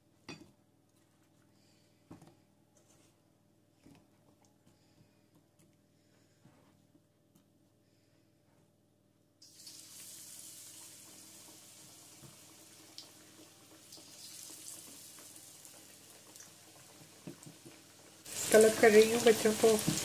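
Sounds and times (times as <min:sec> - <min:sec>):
food frying in hot oil: 0:09.4 - 0:20.0.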